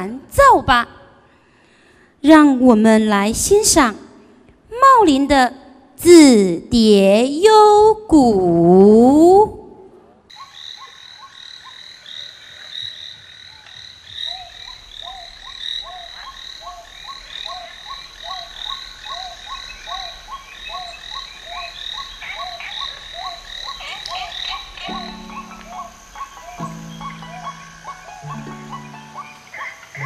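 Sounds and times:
frogs croaking: 9.8s - 30.0s
high steady chirring: 24.7s - 30.0s
low held music notes: 24.9s - 30.0s.

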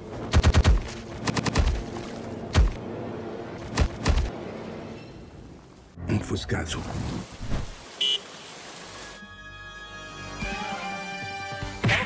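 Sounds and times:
gunfire bursts and shots: 0.2s - 1.9s.

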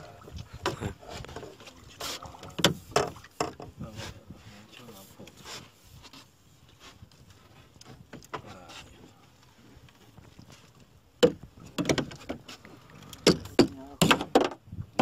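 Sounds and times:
knocks and thumps on boat: 0.0s - 4.3s, 9.9s - 15.0s.

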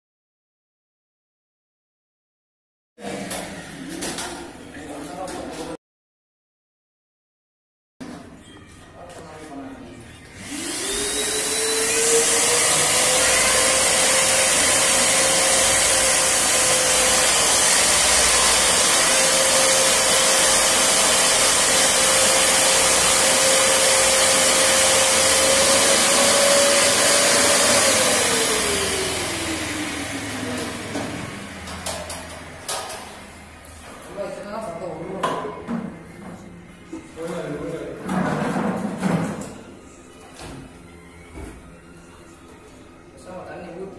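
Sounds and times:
vacuum cleaner motor whine: 10.2s - 32.0s
vacuum sucking water: 10.4s - 31.7s.

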